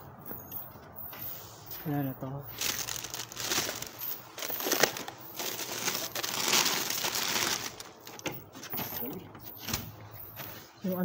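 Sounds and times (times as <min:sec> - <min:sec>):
plastic bags rustling: 0:02.0 - 0:09.1.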